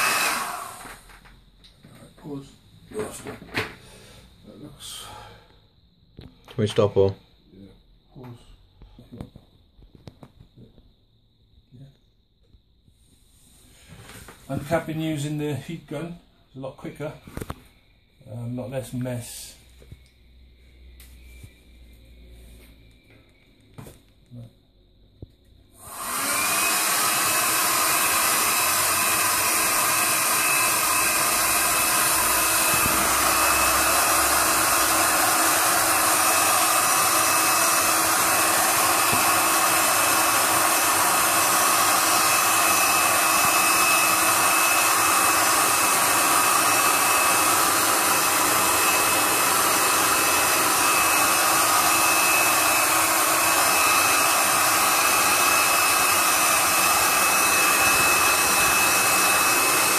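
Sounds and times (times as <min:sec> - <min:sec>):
heat gun fan blowing: 0:00.0 - 0:01.2, 0:25.8 - 0:59.9.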